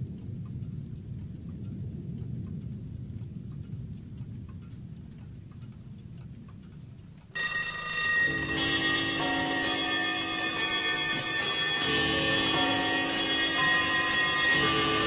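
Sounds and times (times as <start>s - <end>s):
bells ringing: 7.4s - 15.0s
low ringing tone: 7.4s - 15.0s.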